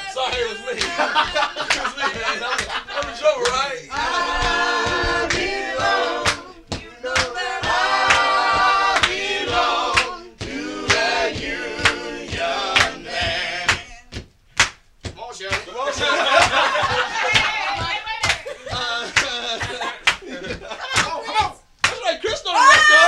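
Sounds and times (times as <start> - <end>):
male voices singing in harmony: 0.0 - 14.1
percussive beat of sharp hits: 4.0 - 22.4.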